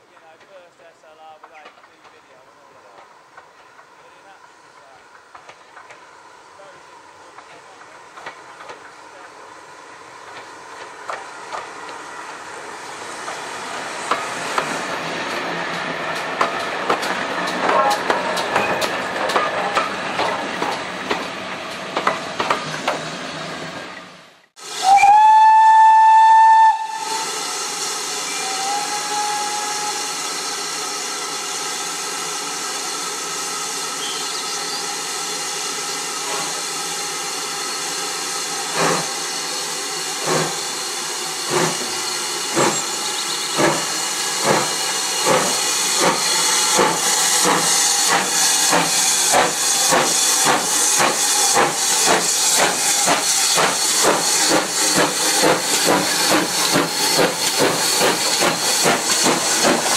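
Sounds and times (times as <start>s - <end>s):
steam locomotive chuffing: 0.2s - 23.8s, 24.6s - 59.9s
steam hissing: 0.2s - 23.9s, 24.6s - 59.9s.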